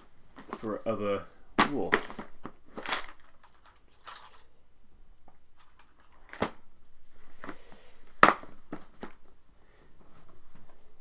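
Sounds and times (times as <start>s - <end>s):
faint rustling: 2.0s - 11.0s.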